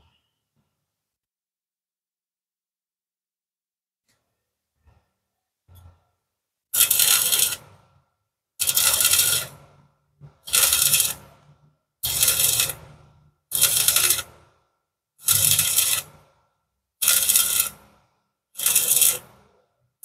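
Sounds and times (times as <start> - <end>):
crackling welding arc bursts: 6.8 - 7.6, 8.6 - 9.6, 10.5 - 11.2, 12.0 - 12.8, 13.5 - 14.3, 15.2 - 16.1, 17.0 - 17.8, 18.6 - 19.2
welding electrode touches: 6.8 - 7.7, 8.6 - 9.6, 10.5 - 11.3, 12.0 - 12.8, 13.5 - 14.3, 15.2 - 16.2, 17.0 - 17.8, 18.6 - 19.3.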